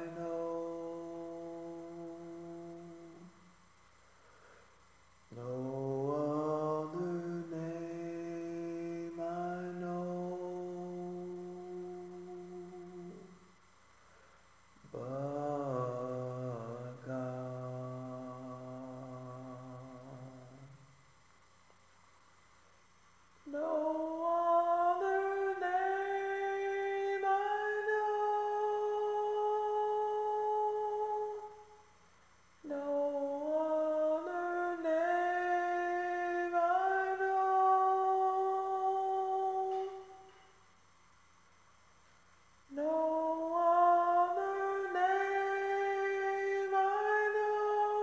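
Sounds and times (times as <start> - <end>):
a cappella voices singing in harmony: 0.0 - 3.6, 5.3 - 13.6, 14.7 - 20.8, 23.4 - 31.9, 32.6 - 40.6, 42.7 - 48.0.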